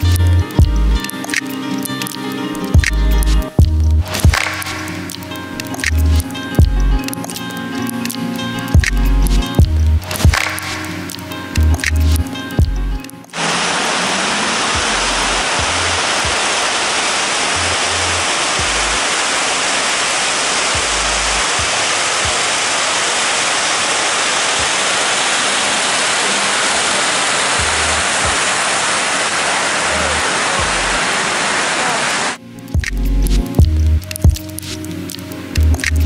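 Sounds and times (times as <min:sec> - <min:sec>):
water cascading into a pool: 0:13.3 - 0:32.4.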